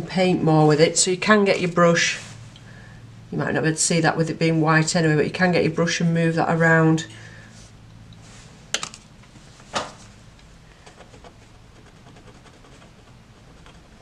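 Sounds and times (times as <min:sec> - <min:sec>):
brush and pen on paper: 0:10.9 - 0:14.0.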